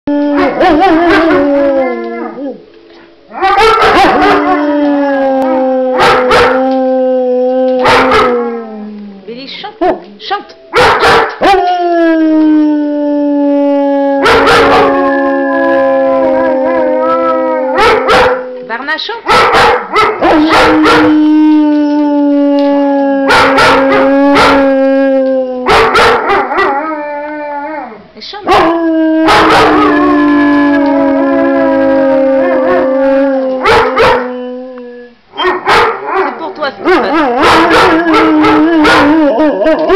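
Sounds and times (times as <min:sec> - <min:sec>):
dog howling: 0:00.1 - 0:02.7, 0:03.3 - 0:09.3, 0:10.8 - 0:18.7, 0:19.9 - 0:39.9
dog yelping: 0:05.4 - 0:06.7, 0:17.8 - 0:18.4, 0:33.6 - 0:34.3, 0:35.4 - 0:39.9
dog barking sharply: 0:10.8 - 0:11.4, 0:19.3 - 0:21.0, 0:35.4 - 0:36.1.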